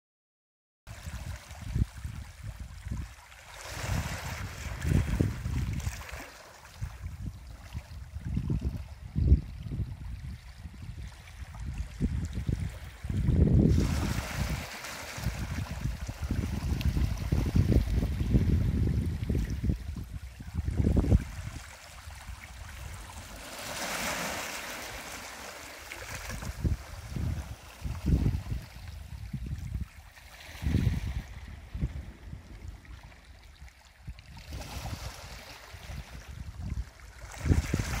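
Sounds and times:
waves washing over concrete slipway: 0:00.9 - 0:07.2, 0:12.6 - 0:33.2, 0:34.4 - 0:38.0
wind buffeting microphone: 0:01.1 - 0:06.1, 0:06.8 - 0:23.2, 0:26.0 - 0:38.0.

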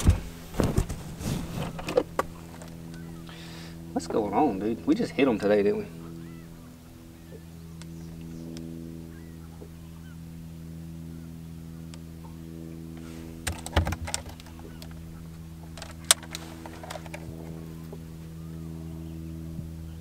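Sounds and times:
boat mechanical hum: 0:00.0 - 0:20.0
fish knocking and rattling: 0:13.4 - 0:15.0.

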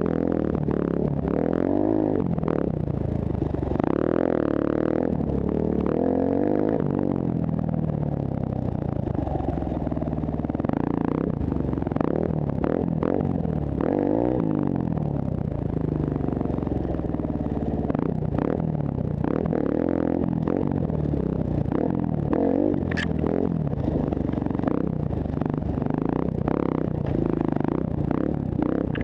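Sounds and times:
dirt bike engine revving: 0:03.6 - 0:07.2, 0:17.4 - 0:29.0
clatters and scrapes: 0:22.8 - 0:24.4.

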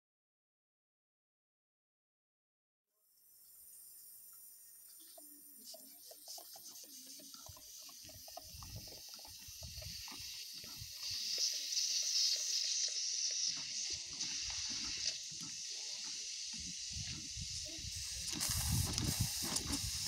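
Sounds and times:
steam hissing and sputtering: 0:03.2 - 0:20.0
low steam engine chuffs: 0:05.0 - 0:20.0.

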